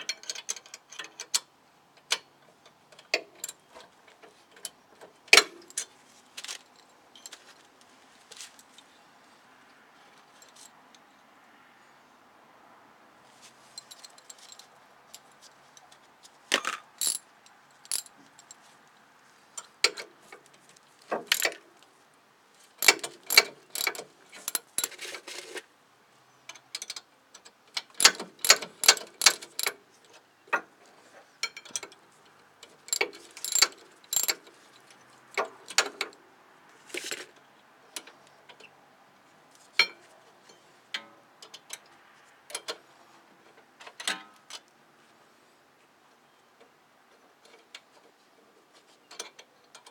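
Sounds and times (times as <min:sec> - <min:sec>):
ratchet wrench clicking: 0:16.6 - 0:17.2, 0:17.8 - 0:18.1, 0:22.8 - 0:24.9.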